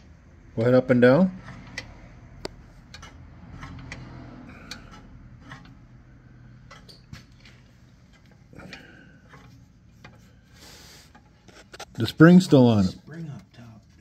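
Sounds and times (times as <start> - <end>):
metallic clicks and knocks: 0.5 - 10.3.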